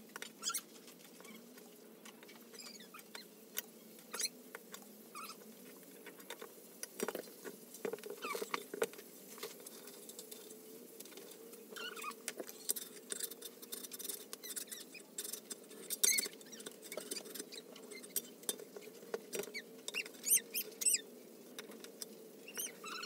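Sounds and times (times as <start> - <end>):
soldering iron squeaks: 4.1 - 4.3, 11.8 - 12.8, 22.5 - 23.0
clicks and crackles of handled strip: 12.2 - 22.7.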